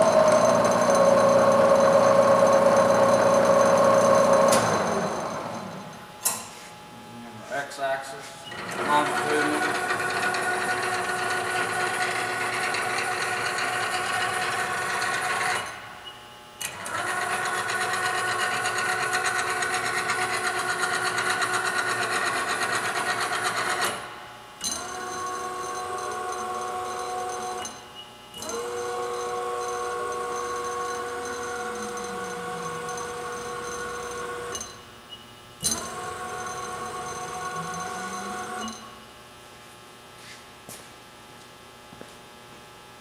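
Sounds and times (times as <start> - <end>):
milling machine spindle whine: 0.0 - 6.1, 8.4 - 24.0, 24.6 - 38.9
machine table drive whine: 0.0 - 6.3, 8.4 - 39.1.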